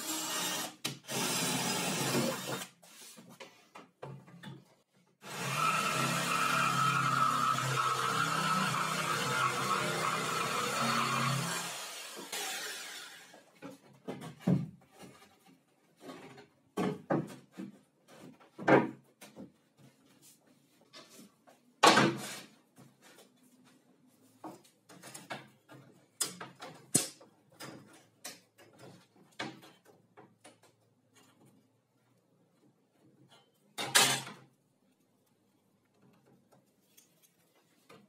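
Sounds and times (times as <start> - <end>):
jigsaw winding down: 0.0 - 2.6, 5.2 - 13.3
wooden boards and tools knocking: 13.5 - 19.8, 21.8 - 22.4.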